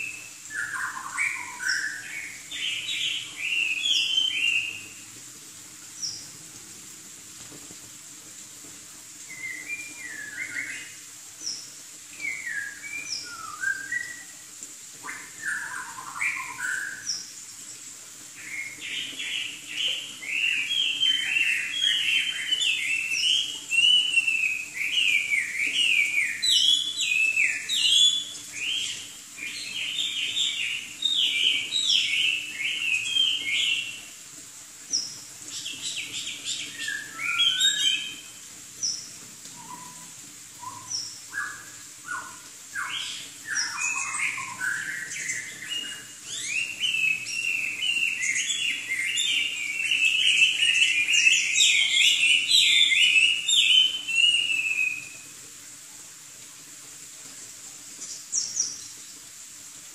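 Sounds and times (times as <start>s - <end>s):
bird singing whistled phrases: 0.0s - 4.9s, 9.3s - 11.0s, 12.2s - 14.3s, 15.0s - 17.2s, 18.5s - 34.0s, 36.4s - 38.3s, 39.6s - 55.2s.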